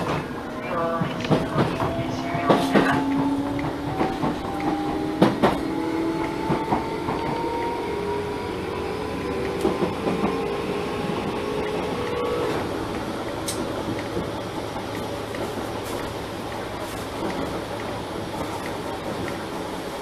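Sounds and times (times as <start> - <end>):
train motor whine: 0.0 - 14.8
rail joint clicks: 0.0 - 20.0
wheels rumbling on track: 0.0 - 20.0.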